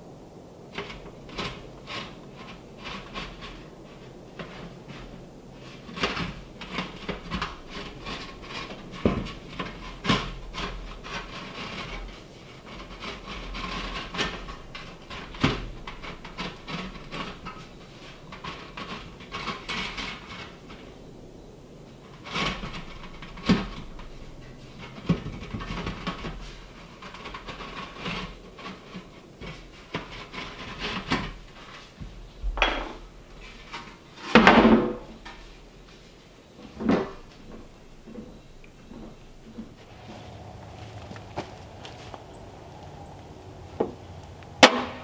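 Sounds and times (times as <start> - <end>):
metal pipe scraping on wood: 0.7 - 21.1, 21.9 - 45.0
pipe knocks: 32.4 - 33.0, 43.7 - 45.0.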